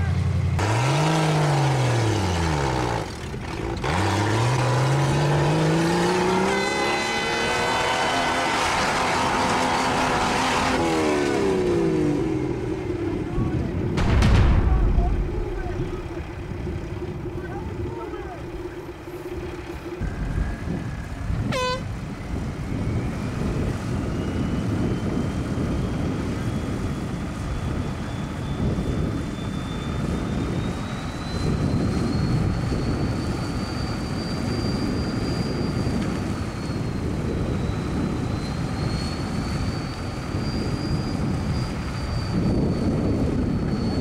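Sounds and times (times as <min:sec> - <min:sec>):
tyres churning dirt: 0:00.0 - 0:12.0
engine straining under load: 0:00.0 - 0:25.3
high whine rising in pitch: 0:03.8 - 0:44.0.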